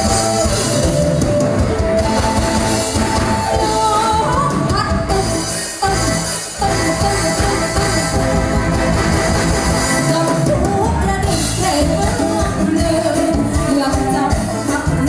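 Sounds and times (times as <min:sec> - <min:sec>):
congas: 0:00.0 - 0:15.0
drum kit: 0:00.0 - 0:15.0
electric guitar: 0:00.0 - 0:15.0
keyboard: 0:00.0 - 0:15.0
woman singing into microphone: 0:03.5 - 0:08.6, 0:10.0 - 0:15.0.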